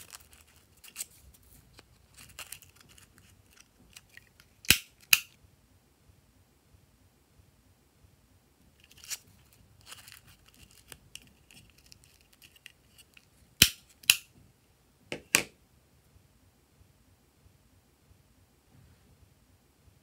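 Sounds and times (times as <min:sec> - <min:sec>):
paper rustling: 0:00.0 - 0:04.6, 0:08.8 - 0:13.3.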